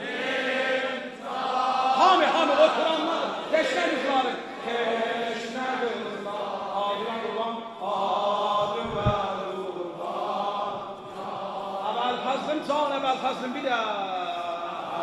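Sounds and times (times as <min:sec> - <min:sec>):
man chanting a lament: 0:01.9 - 0:04.5, 0:05.3 - 0:10.0, 0:11.7 - 0:15.0
low thump: 0:08.6 - 0:09.3.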